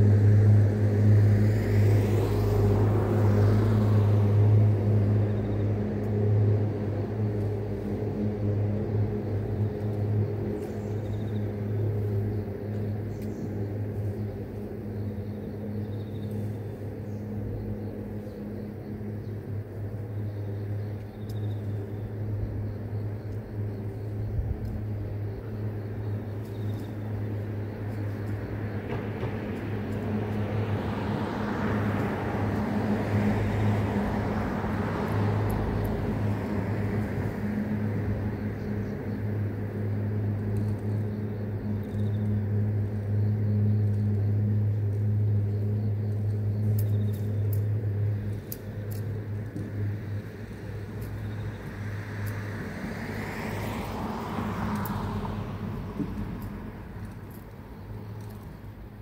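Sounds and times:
vehicle passing: 0.0 - 13.0, 27.0 - 59.0
insects chirping: 0.0 - 59.0
low traffic engine hum: 0.0 - 59.0.

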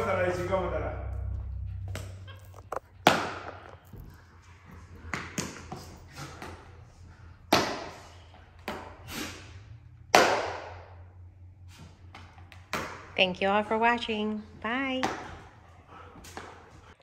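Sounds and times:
sharp knocks with echo: 10.1 - 10.8.

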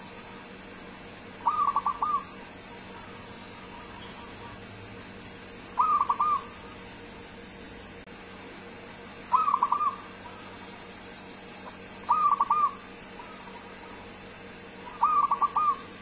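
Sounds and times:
dove cooing: 1.3 - 4.7, 5.7 - 6.9, 9.3 - 10.6, 11.7 - 14.1, 14.8 - 16.0.

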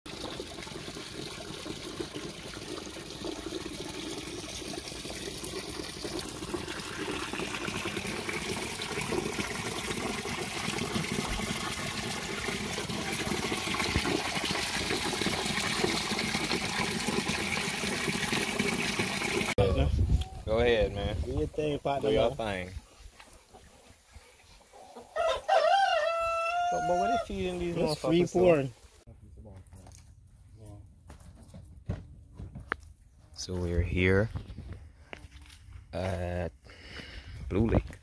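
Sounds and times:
running water rushing: 0.1 - 19.6.

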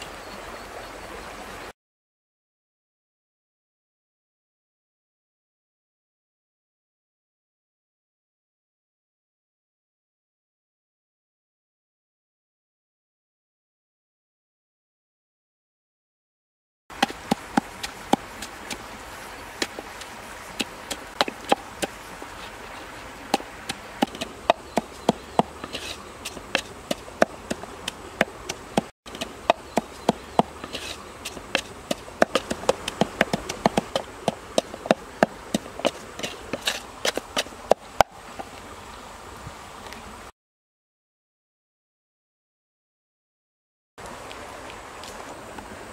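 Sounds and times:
background hiss: 16.9 - 40.3, 44.0 - 45.9
pestle pounding in mortar: 17.0 - 18.8, 23.3 - 38.1.

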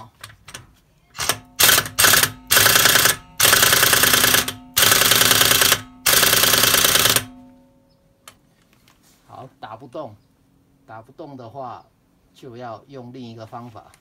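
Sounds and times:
pneumatic impact wrench hammering: 0.2 - 7.6.

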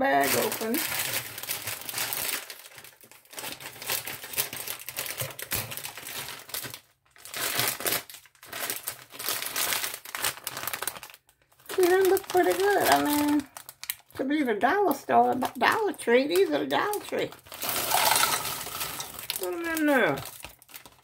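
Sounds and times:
plastic bag crinkling: 0.0 - 14.3, 15.1 - 21.0
scissors cutting plastic: 3.8 - 6.7.

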